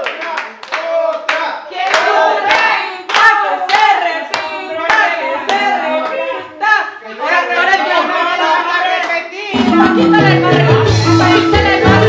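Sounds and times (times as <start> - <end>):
group clapping in rhythm: 0.0 - 6.8, 8.6 - 12.0
voices singing: 1.6 - 12.0.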